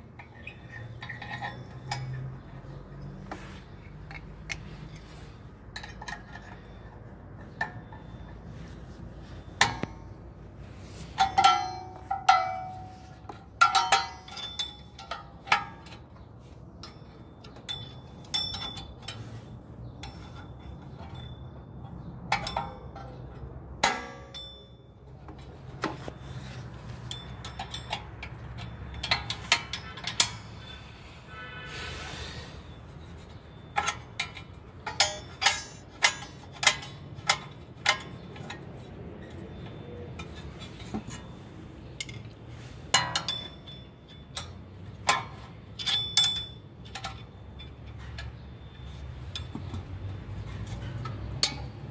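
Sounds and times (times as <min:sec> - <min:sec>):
metal taps: 0:11.1 - 0:19.2, 0:33.2 - 0:38.6
metallic clinks of tools: 0:13.6 - 0:15.8, 0:16.8 - 0:19.2, 0:26.1 - 0:30.7, 0:42.9 - 0:50.2.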